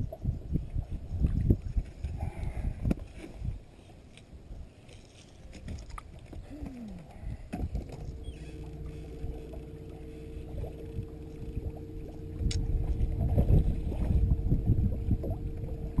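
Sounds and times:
low uneven rumble: 0.0 - 16.0
electric boat motor humming: 7.7 - 16.0.

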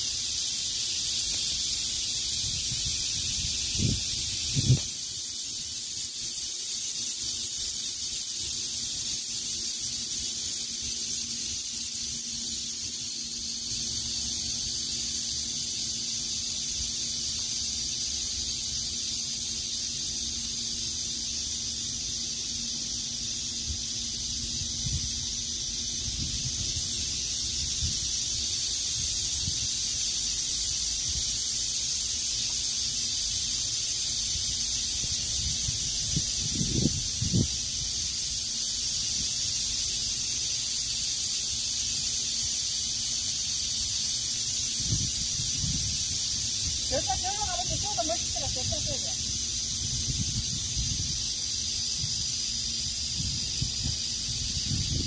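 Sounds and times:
insects buzzing: 0.0 - 55.0
wind rumbling on microphone: 2.3 - 4.9, 35.3 - 37.8, 44.8 - 51.3, 52.9 - 55.0.

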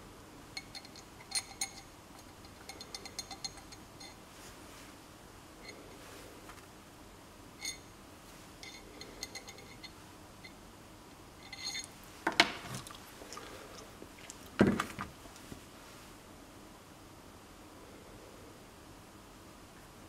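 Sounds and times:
metal parts clinking: 0.6 - 4.2, 8.6 - 9.9, 11.4 - 11.9.

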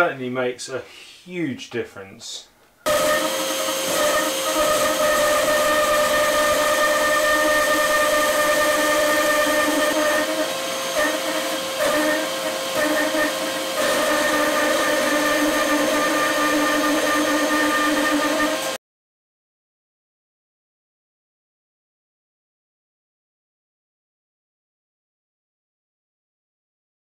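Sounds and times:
bandsaw cutting a log: 2.9 - 18.8.

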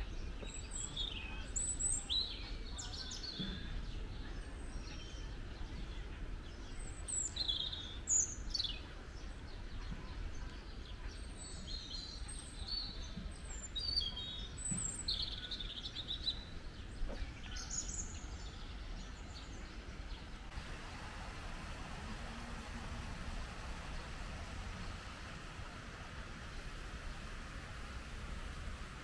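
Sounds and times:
low background rumble: 0.0 - 29.0
songbirds chirping: 0.0 - 29.0
even hiss: 14.6 - 29.0.

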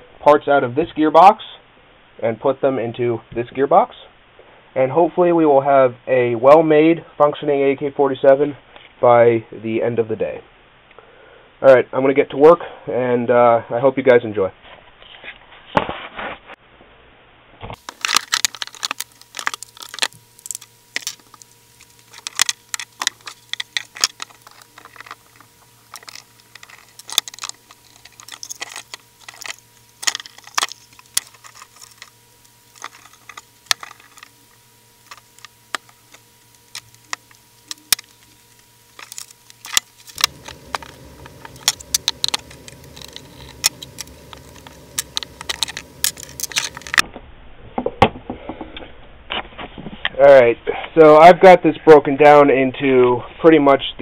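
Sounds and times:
parts clicking and clattering: 17.8 - 47.0.

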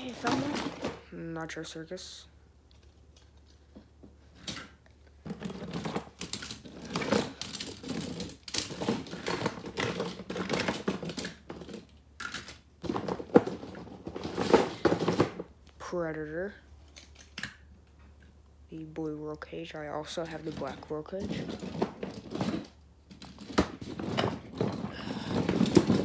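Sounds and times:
toy trucks clattering: 2.7 - 15.5, 20.1 - 26.0.

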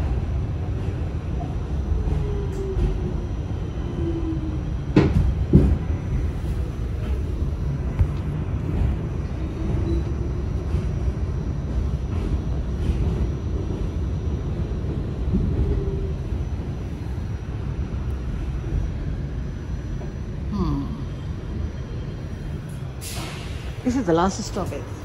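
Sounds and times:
subway train rumbling past: 0.0 - 25.0.

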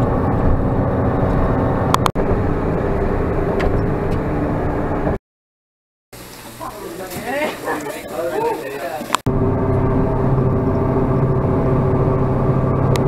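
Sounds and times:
car engine and road noise: 0.0 - 5.2, 9.1 - 13.0.

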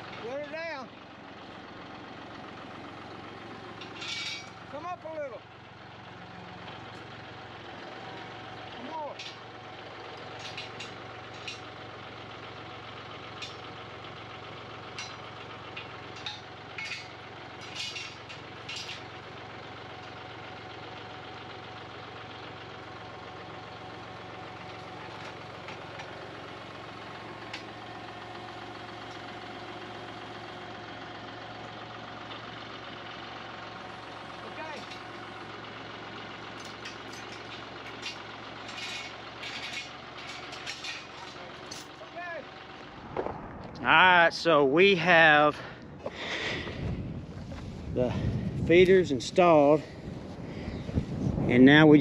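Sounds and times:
tractor engine idling: 0.0 - 52.0
metal chain clinking: 3.8 - 4.6, 10.3 - 11.7, 14.9 - 19.1, 36.5 - 42.3.

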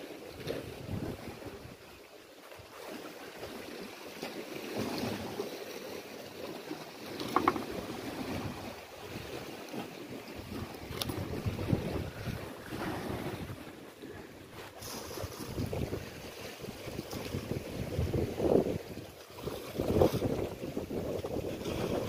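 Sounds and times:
wind on microphone: 0.4 - 1.8, 10.4 - 22.0
waves washing against rocky shore: 2.6 - 22.0.

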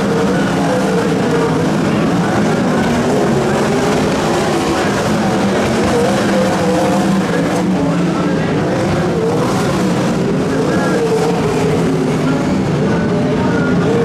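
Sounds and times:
racing car engines revving: 0.0 - 14.0.

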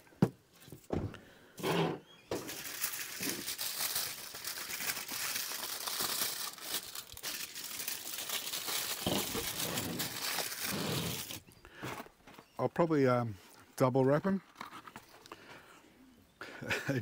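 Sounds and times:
aluminium foil crinkling: 2.3 - 11.4.

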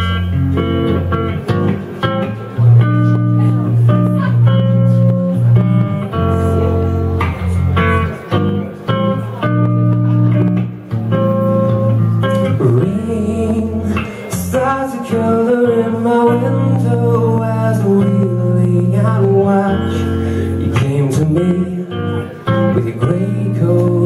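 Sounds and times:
lap guitar picked notes: 0.0 - 24.0
man singing: 12.2 - 24.0.

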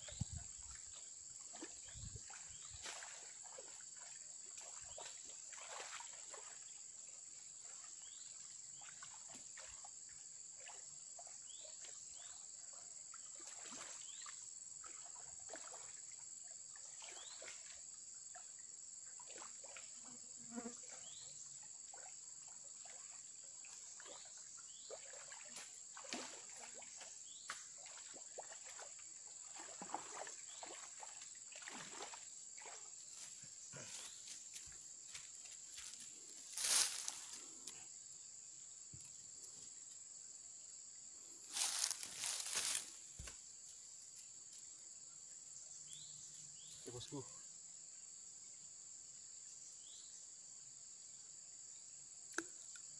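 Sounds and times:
faint clicks and chirps: 52.3 - 52.9.

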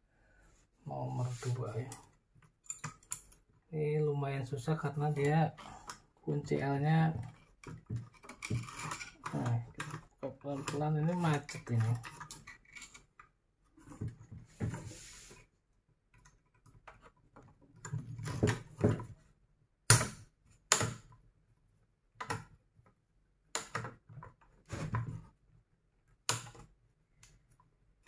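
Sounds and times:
hand tool scraping metal: 8.4 - 13.0.

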